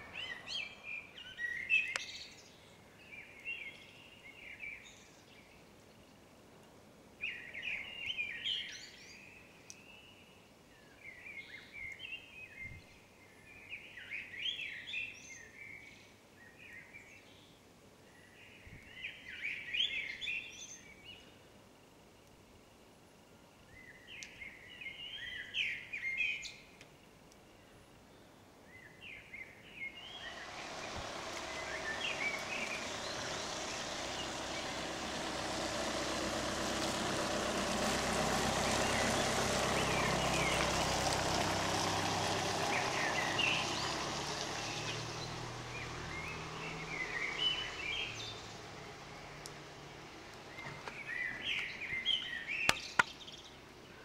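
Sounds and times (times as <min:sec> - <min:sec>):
small birds chirping: 0:00.0 - 0:05.3, 0:28.8 - 0:54.0
car passing on snow: 0:29.8 - 0:53.4.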